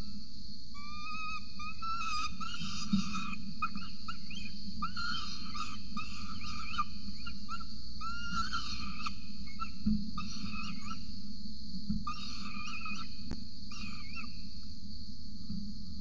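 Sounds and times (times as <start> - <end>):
young falcon begging calls: 0.8 - 11.0, 12.1 - 13.1, 13.7 - 14.3.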